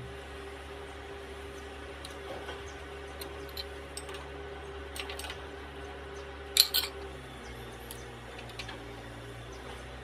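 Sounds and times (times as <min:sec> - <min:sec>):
machine hum: 0:00.0 - 0:10.0
metal parts clacking: 0:05.0 - 0:05.4, 0:06.6 - 0:07.0.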